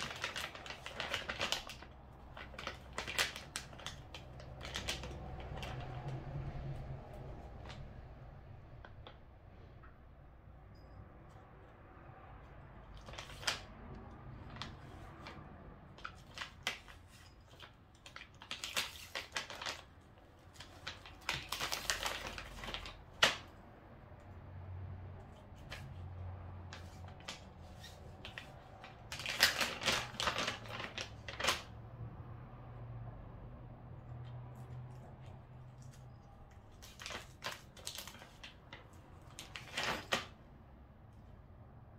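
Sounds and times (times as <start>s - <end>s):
plastic pouch crinkling: 0.0s - 6.2s, 15.9s - 23.5s, 26.7s - 31.7s, 35.7s - 40.4s.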